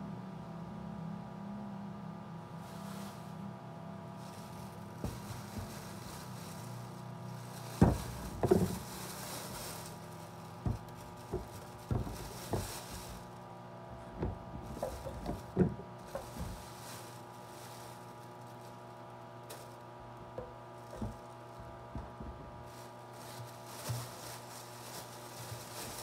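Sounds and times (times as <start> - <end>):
steady low hum: 0.0 - 26.0
plastic bag crinkling: 4.1 - 26.0
fruit knocks and thuds: 7.6 - 9.8, 10.5 - 13.2, 14.0 - 16.8, 20.3 - 22.7.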